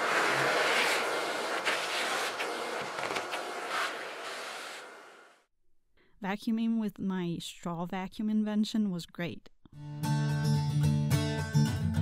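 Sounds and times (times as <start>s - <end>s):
vacuum cleaner running: 0.0s - 5.4s.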